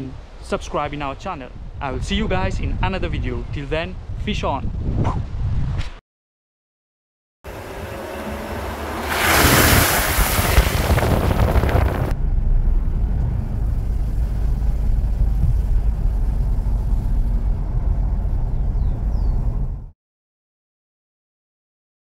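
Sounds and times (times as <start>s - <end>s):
wind buffeting microphone: 1.2s - 5.9s, 7.7s - 19.9s
water splashing from tyres: 7.5s - 12.1s.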